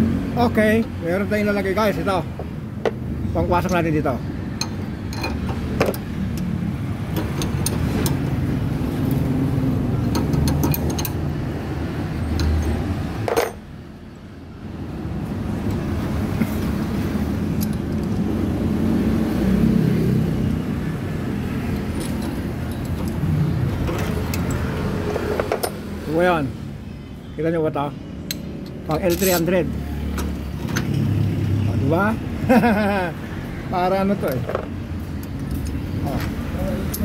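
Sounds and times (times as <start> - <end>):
metal tools clicking and clinking: 4.6 - 8.3, 10.0 - 11.3, 12.2 - 13.7, 16.4 - 18.3, 21.7 - 25.9, 28.3 - 31.0, 34.1 - 37.0.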